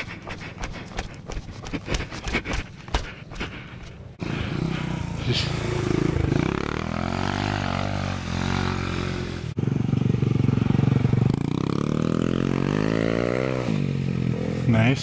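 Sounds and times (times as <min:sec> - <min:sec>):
mini-motorcycle engines revving: 0:04.2 - 0:15.0.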